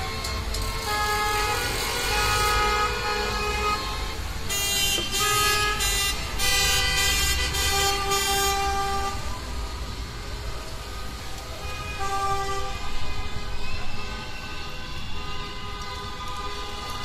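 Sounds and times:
car horns honking: 0.0s - 9.2s, 11.6s - 13.4s
passing traffic: 0.0s - 17.0s.

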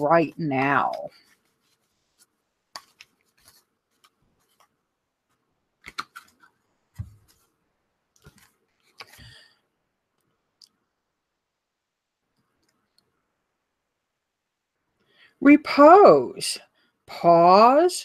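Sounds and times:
card rustle: 0.8s - 7.5s
cards clicking and sliding: 2.7s - 4.7s, 5.8s - 7.4s.

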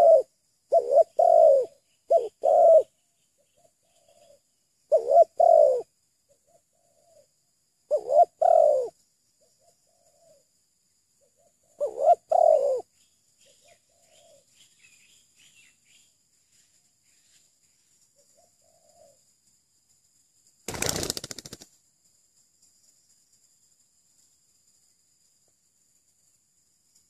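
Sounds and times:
doves cooing: 0.0s - 2.9s, 3.6s - 5.9s, 7.9s - 8.9s, 11.4s - 12.9s, 18.4s - 19.2s
small birds chirping: 0.0s - 7.3s, 11.2s - 19.2s
rapid wing-flapping: 20.6s - 21.8s.

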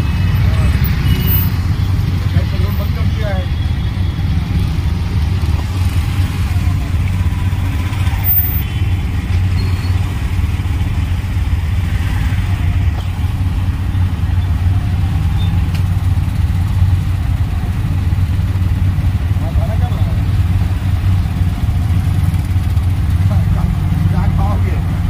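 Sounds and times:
car and motorbike engines idling: 0.0s - 25.0s.

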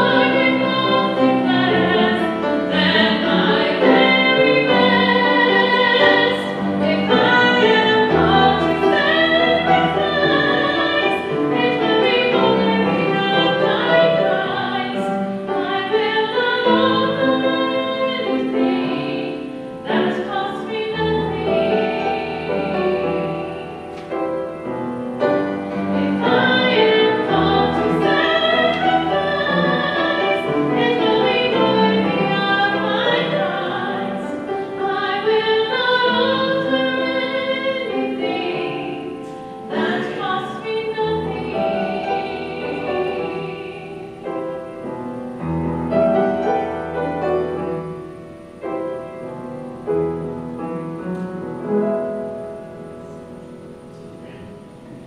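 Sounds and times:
woman singing with vibrato: 0.0s - 24.6s, 25.3s - 47.6s
upright piano: 0.0s - 55.0s.

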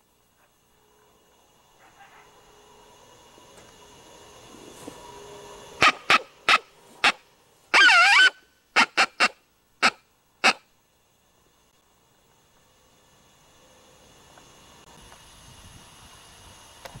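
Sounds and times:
coyote barking: 5.8s - 10.7s
coyote wavering yelp: 5.8s - 10.7s.

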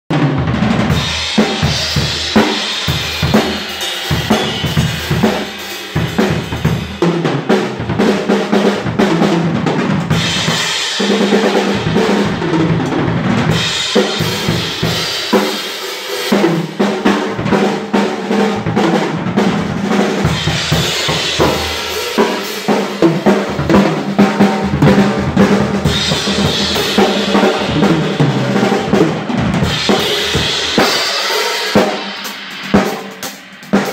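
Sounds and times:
drum kit groove: 0.1s - 33.9s
cymbals crashing: 0.9s - 7.0s, 10.1s - 12.8s, 13.4s - 16.3s, 20.3s - 23.7s, 25.8s - 33.9s.

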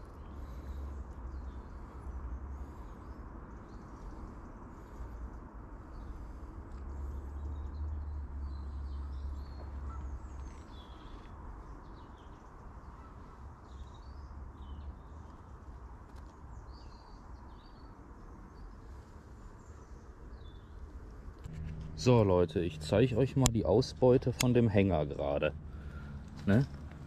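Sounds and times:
steady outdoor hiss: 0.0s - 27.0s
low rumble: 21.4s - 27.0s.

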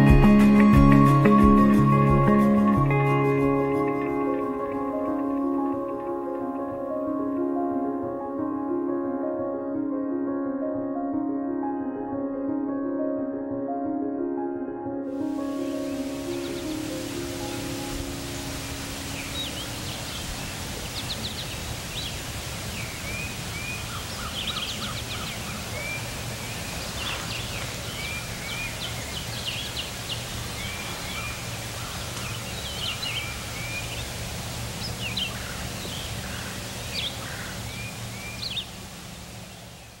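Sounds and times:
songbirds chirping and trilling: 15.2s - 40.0s.

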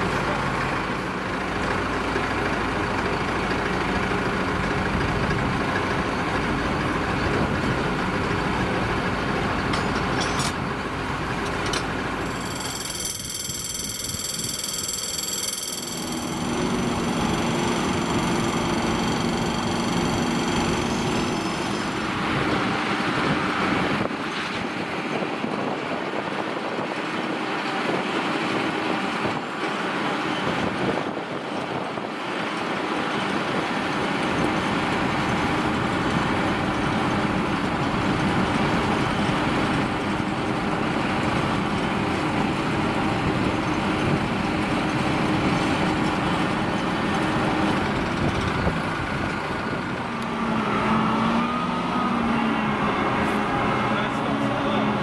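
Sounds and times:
diesel engine running: 0.0s - 55.0s
high ringing tone: 12.2s - 22.1s.

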